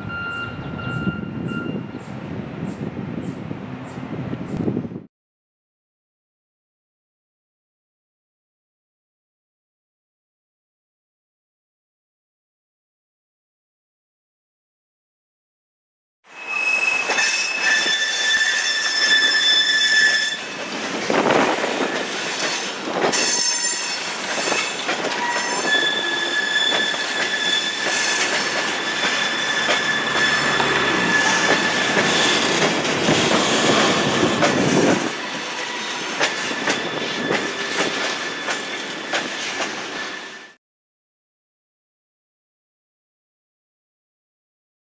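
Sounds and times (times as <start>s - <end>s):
rail wheels squealing: 0.0s - 2.1s, 16.3s - 40.6s.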